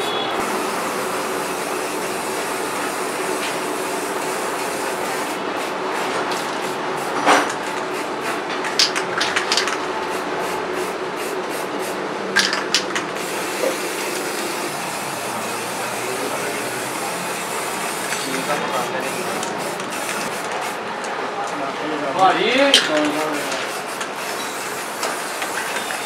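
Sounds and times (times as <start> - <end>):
spray paint can hissing: 0.0 - 20.9, 22.8 - 26.0
sharp clicks: 8.6 - 9.8, 22.7 - 23.2.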